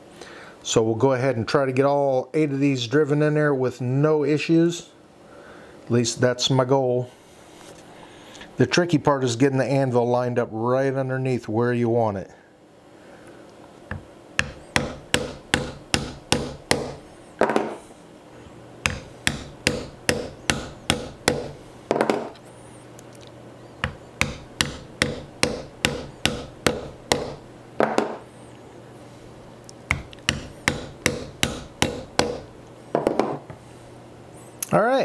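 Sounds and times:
mallet tapping metal tool: 13.9 - 17.0, 18.8 - 21.6, 23.8 - 27.4, 29.9 - 32.5.

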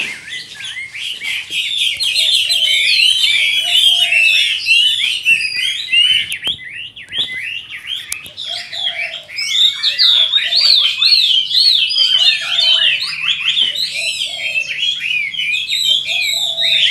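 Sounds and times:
bird whistling song: 0.0 - 16.9.

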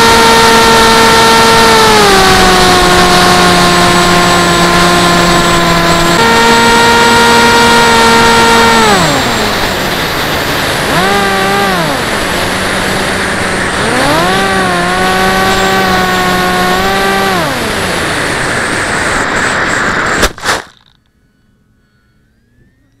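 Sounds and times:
electric motor and propeller whining: 0.0 - 23.0
wind rushing over camera: 17.1 - 20.9.

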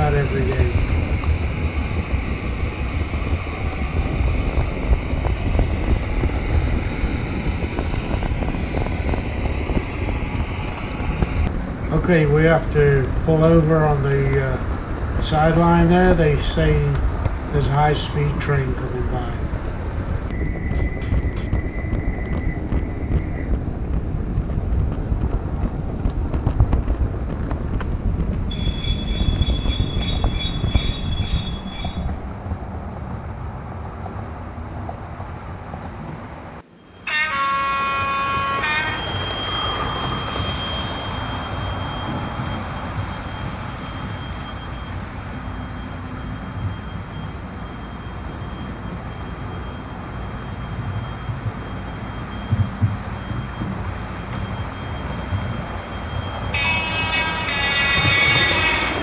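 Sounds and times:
model train rumbling: 0.0 - 59.0
thin high tone: 54.2 - 59.0.

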